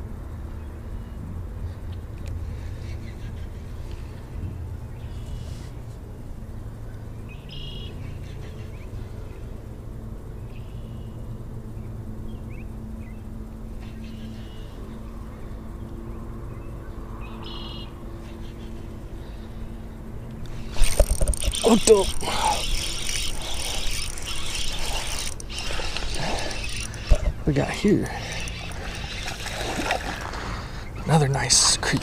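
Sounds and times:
low outdoor rumble: 0.0s - 32.0s
bird chirps: 16.5s - 18.8s.

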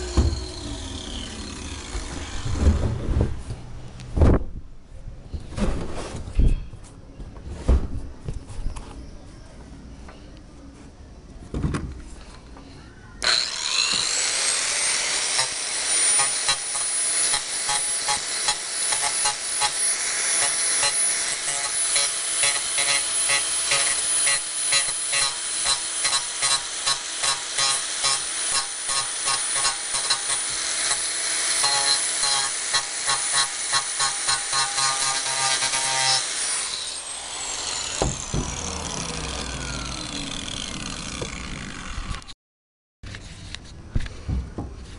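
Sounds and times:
power tool whining: 0.0s - 3.0s, 13.2s - 42.4s
tool cutting plastic tank: 0.0s - 3.0s.

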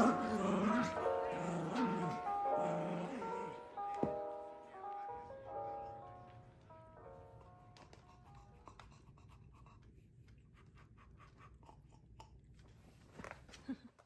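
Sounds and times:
soft background music: 0.0s - 9.6s.

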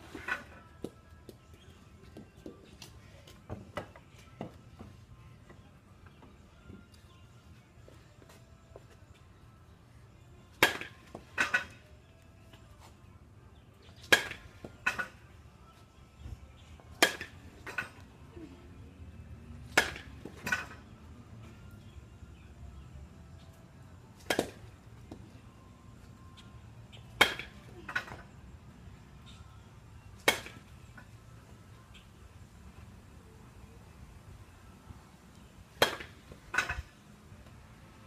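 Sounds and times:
wooden bat cracking ball: 10.6s - 11.8s, 14.0s - 15.2s, 17.0s - 18.0s, 19.7s - 20.8s, 24.2s - 25.2s, 27.2s - 28.2s, 30.2s - 30.7s, 35.8s - 36.8s.

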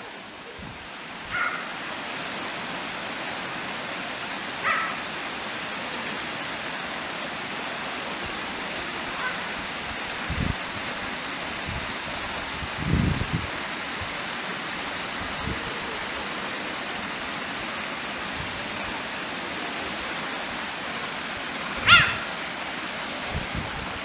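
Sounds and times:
short high animal calls: 1.3s - 1.7s, 4.6s - 5.0s, 21.8s - 22.4s.

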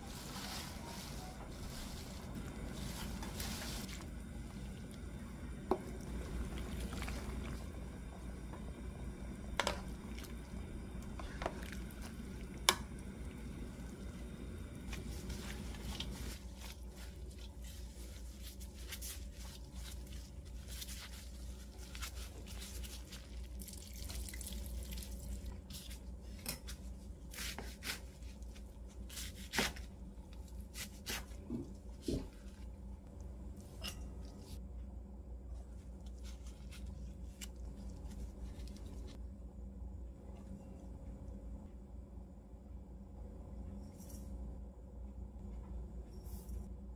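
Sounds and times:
low steady hum: 0.0s - 46.9s
water dripping and splashing: 23.3s - 25.5s.

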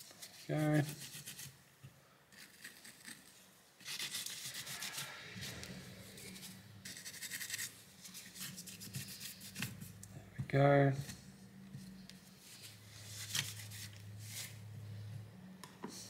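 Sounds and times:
toothbrush scrubbing: 3.8s - 9.7s.

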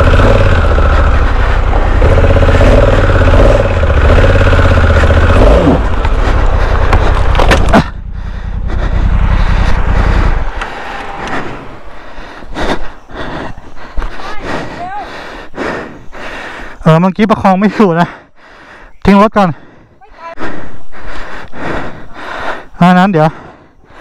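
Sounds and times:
motorcycle engine revving hard: 0.0s - 11.6s
low rumble: 0.0s - 14.2s.

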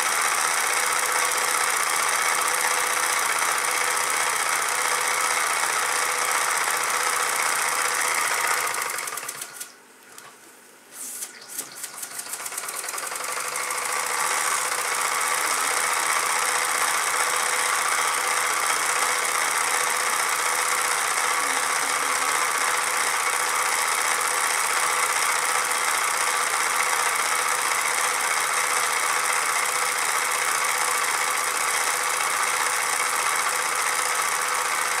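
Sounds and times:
toy steam engine whirring: 11.1s - 35.0s.

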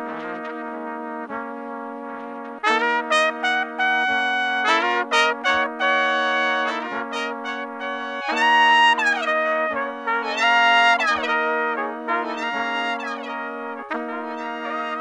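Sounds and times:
slow melody of held notes: 7.6s - 15.0s.

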